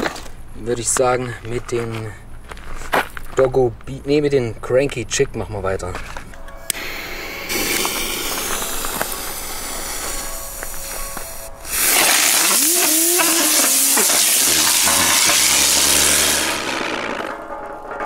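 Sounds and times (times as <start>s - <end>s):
ground spinner fireworks hissing: 6.7s - 17.6s
rising whistling tone: 6.8s - 17.3s.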